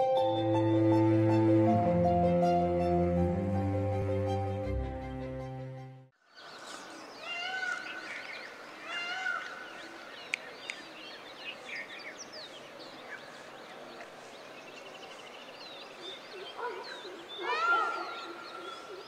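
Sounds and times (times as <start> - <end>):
long pitched bird calls: 6.2 - 19.0.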